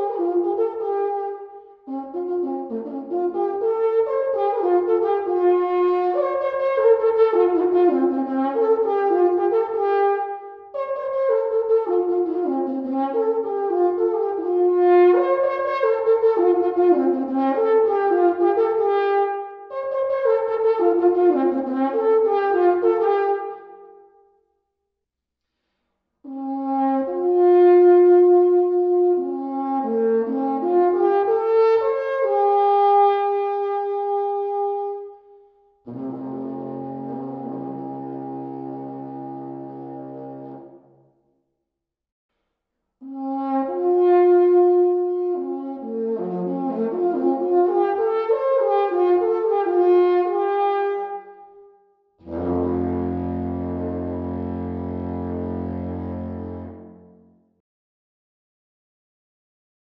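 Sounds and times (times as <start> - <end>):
long horn playing slow melody: 26.3 - 35.2, 35.9 - 41.0, 43.0 - 51.6, 52.2 - 57.4.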